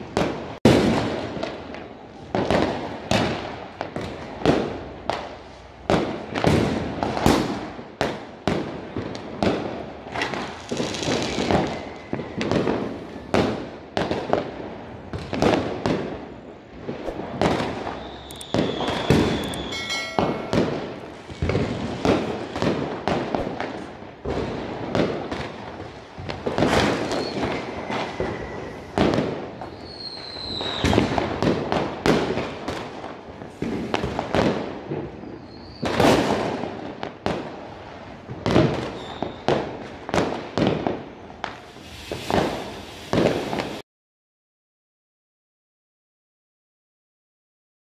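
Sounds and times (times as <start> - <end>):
firecracker bangs and pops: 0.0 - 43.8
firework whistles: 9.9 - 23.9, 25.4 - 32.2, 35.0 - 36.4, 38.8 - 39.6, 41.1 - 43.8.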